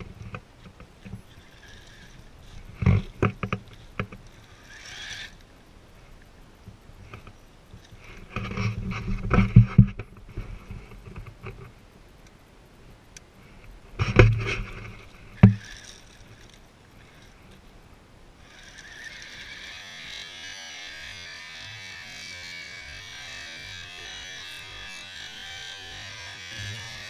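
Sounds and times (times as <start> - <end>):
electric motor and tracks grinding: 0.0 - 11.8, 13.9 - 27.0
gravel scraping: 13.4 - 17.8.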